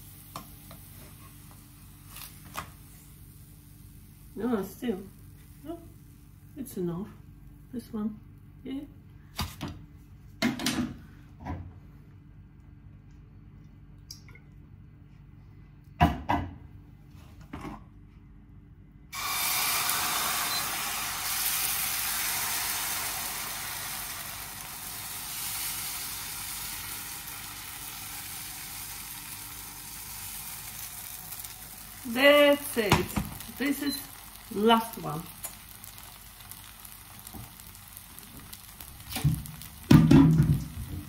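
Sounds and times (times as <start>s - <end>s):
batter sizzling in hot oil: 19.1s - 41.0s.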